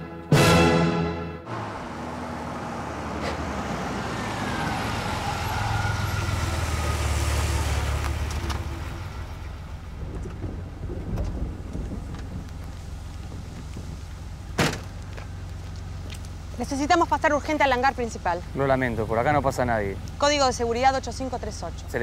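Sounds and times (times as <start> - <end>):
car engine running: 7.9 - 22.0.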